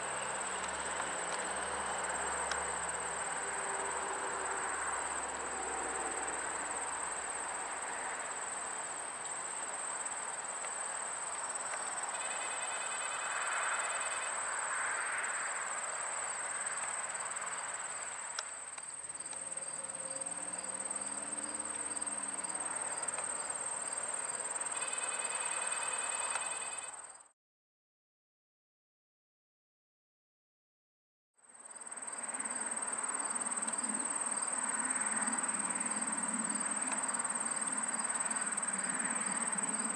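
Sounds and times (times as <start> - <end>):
pulsing insect song: 0.0 - 27.3, 31.4 - 39.9
insect high-pitched trill: 9.7 - 27.3, 31.5 - 39.9.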